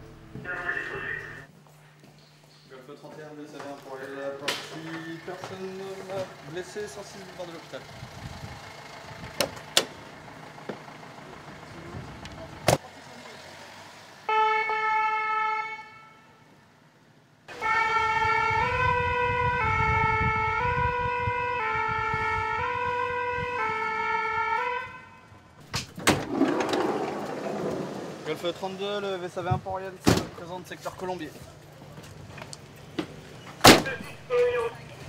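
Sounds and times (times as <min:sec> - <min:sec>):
two-tone siren: 0:14.3 - 0:16.5, 0:17.5 - 0:25.4.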